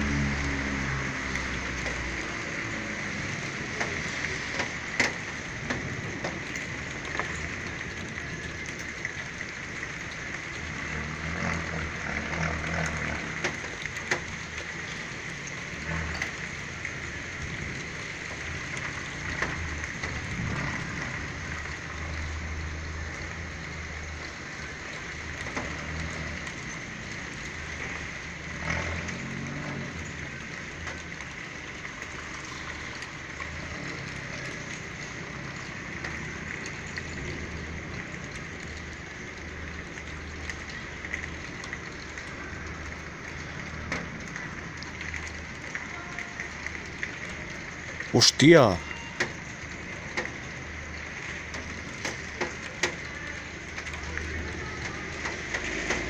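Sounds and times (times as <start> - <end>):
rain pattering: 0.0 - 56.0
sharp drip ticks: 49.2 - 56.0.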